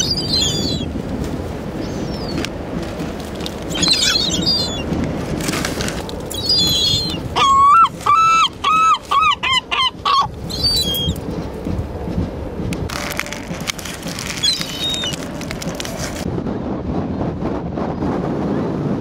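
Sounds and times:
gulls calling: 0.0 - 1.0, 1.7 - 2.6, 3.5 - 5.0, 6.3 - 11.5, 13.5 - 15.8.

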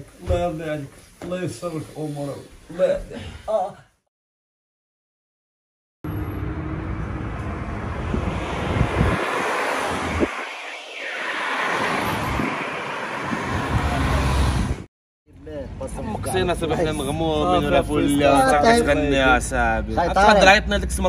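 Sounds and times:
wind buffeting microphone: 7.0 - 14.9.

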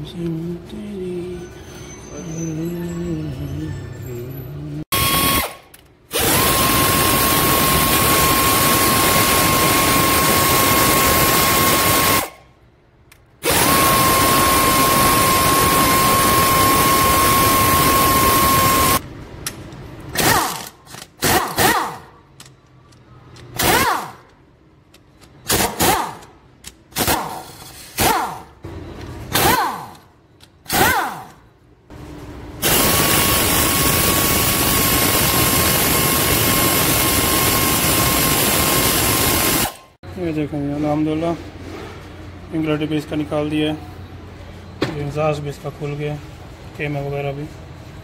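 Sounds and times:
pneumatic wrench spinning: 4.9 - 12.4, 13.4 - 19.0, 20.1 - 22.1, 23.5 - 24.3, 25.4 - 28.5, 29.3 - 30.0, 30.6 - 31.4, 32.6 - 39.9.

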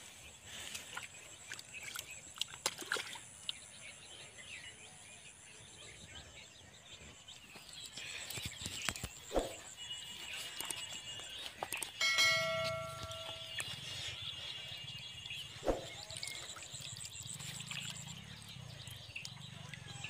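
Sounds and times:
birds chirping: 0.0 - 20.0
splashes in muddy water: 0.9 - 3.6, 15.6 - 20.0
thin high tone: 12.0 - 13.8.

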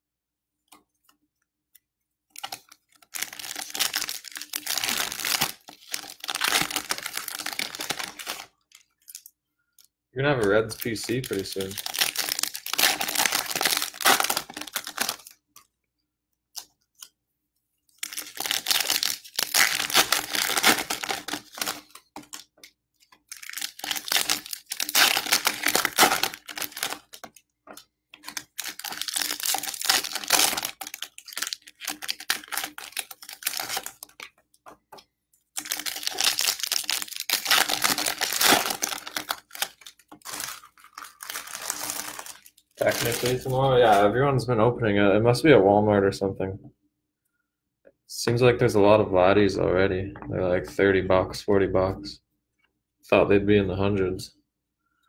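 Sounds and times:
wrappers tearing and crinkling: 2.4 - 9.3, 10.4 - 15.7, 18.0 - 34.3, 35.5 - 44.1.

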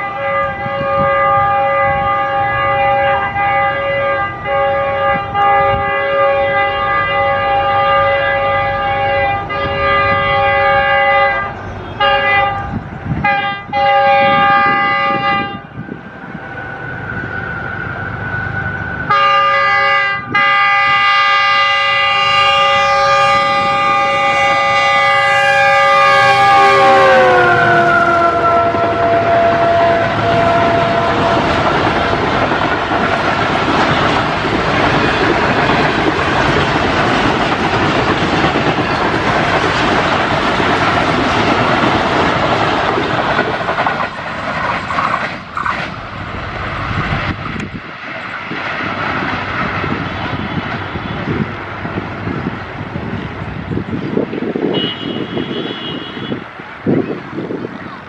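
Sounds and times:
locomotive air horn chord blasts: 0.0 - 15.8, 19.1 - 31.8, 54.6 - 56.5.

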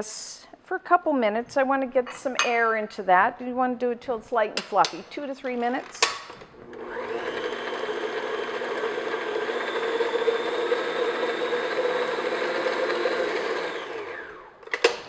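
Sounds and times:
stand mixer motor humming: 6.6 - 14.6.

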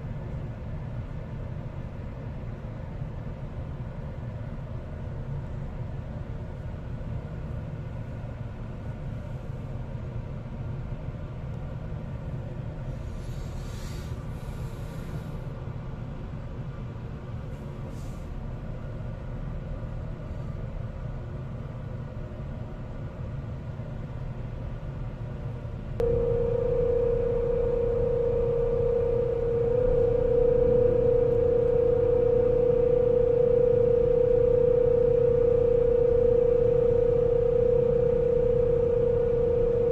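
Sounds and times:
low rumble of ship: 0.0 - 39.9
winch motor humming: 26.0 - 39.9.

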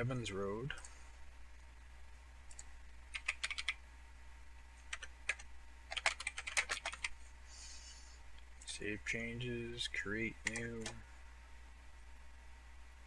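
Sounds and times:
steady low hum: 0.0 - 13.0
typing on keyboard: 2.5 - 3.8, 4.9 - 7.2, 10.4 - 11.0.

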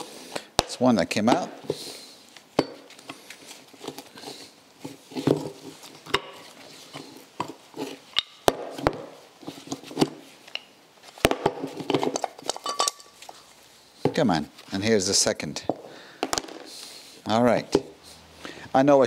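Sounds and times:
metal knocks and clinks: 12.2 - 13.2.

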